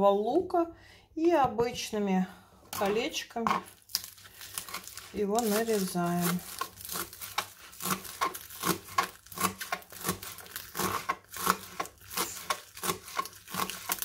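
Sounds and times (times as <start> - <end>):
knife chopping on plastic board: 5.4 - 14.0.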